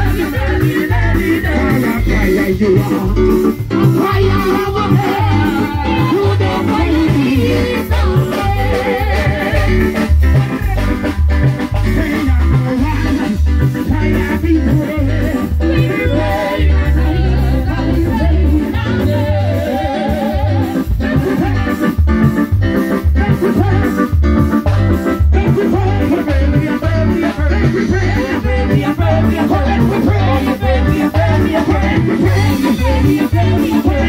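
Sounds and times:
electric guitar: 0.0s - 34.0s
keyboard: 0.0s - 34.0s
pulsing bass beat: 0.0s - 34.0s
woman singing into a microphone: 4.0s - 9.9s, 15.6s - 20.7s.

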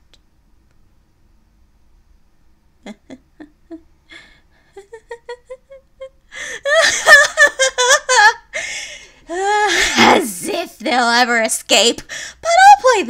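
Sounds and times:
woman laughing: 2.8s - 10.3s.

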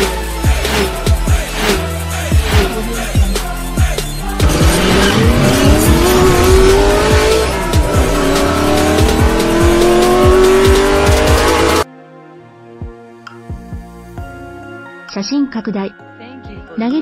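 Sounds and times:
electronic music with steady beat: 0.0s - 11.8s
race car engine revving: 0.6s - 3.0s, 4.2s - 11.8s.

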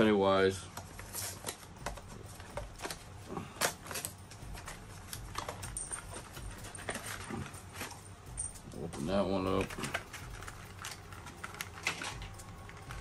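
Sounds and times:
packaging clicks and crinkles: 0.8s - 13.0s.

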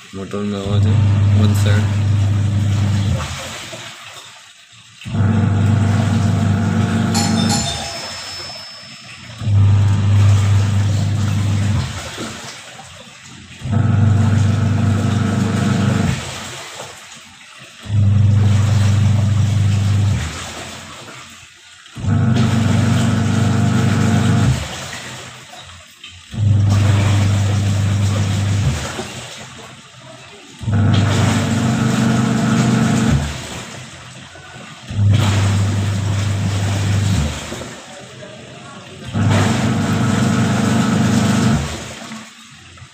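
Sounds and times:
water swishing: 0.0s - 21.6s, 22.3s - 42.9s
man talking: 0.1s - 2.0s
washing machine motor humming: 0.1s - 4.1s, 4.9s - 16.8s, 17.5s - 21.0s, 21.8s - 25.4s, 26.2s - 42.9s.

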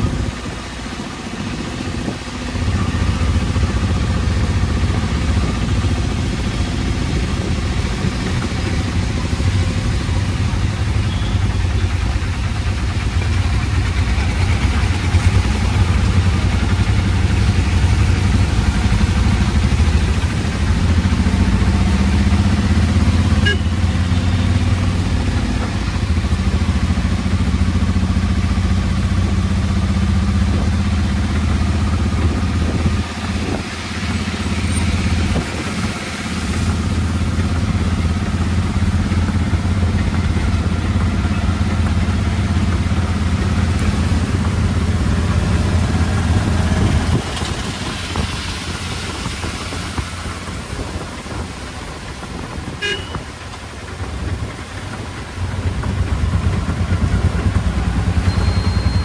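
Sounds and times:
rain hiss on wet road: 0.0s - 59.0s.

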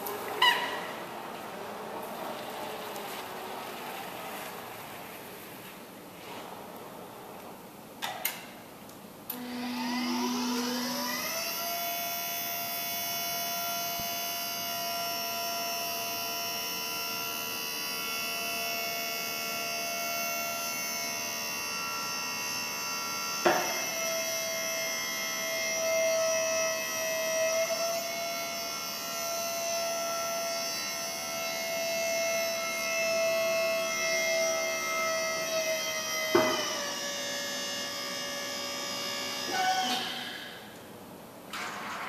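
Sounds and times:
electric lift motor whining: 9.3s - 40.7s.

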